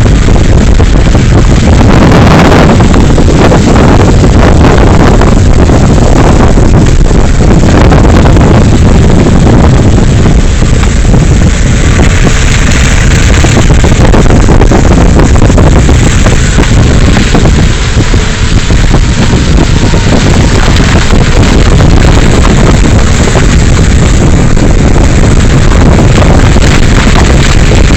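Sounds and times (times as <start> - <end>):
vehicle engine and road noise: 0.0 - 27.9
wind buffeting microphone: 0.0 - 27.9.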